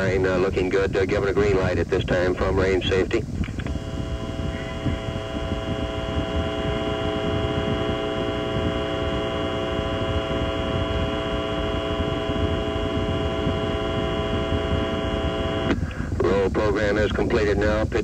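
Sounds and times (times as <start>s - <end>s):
multi-pitch whine: 0.0s - 18.0s
rocket engines rumbling: 0.0s - 18.0s.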